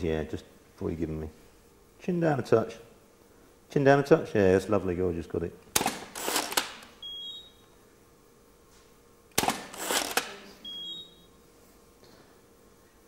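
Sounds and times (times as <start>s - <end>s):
camera shutter and flash firing: 5.8s - 6.9s, 9.4s - 10.4s.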